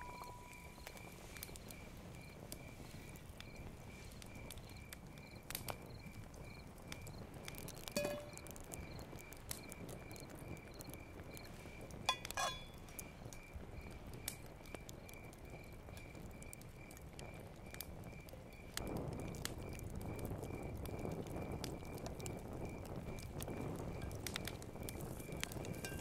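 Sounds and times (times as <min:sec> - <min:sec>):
cricket chirping: 0:00.0 - 0:26.0
wood fire crackling and popping: 0:00.0 - 0:26.0
short ringing clatter: 0:08.0 - 0:08.4, 0:12.1 - 0:12.8.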